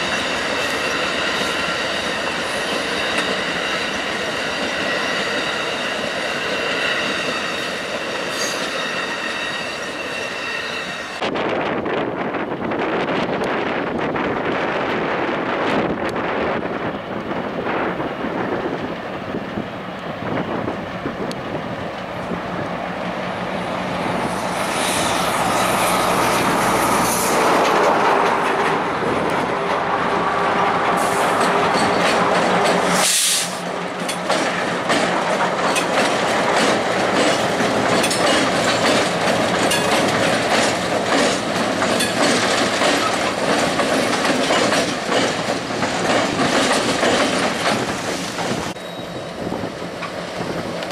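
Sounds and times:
diesel locomotive engines running: 0.0 - 50.9
train wheels on rails: 0.0 - 50.9.

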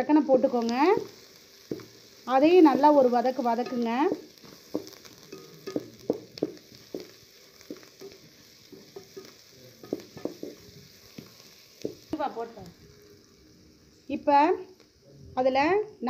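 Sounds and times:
food sizzling in oil: 0.0 - 16.0
spatula knocking and scraping pot: 1.7 - 2.0, 3.6 - 12.1.

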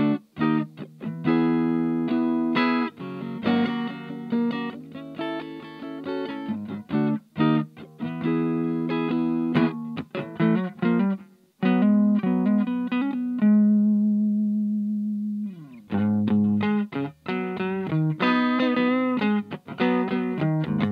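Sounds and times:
electric guitar chords: 0.0 - 20.9.

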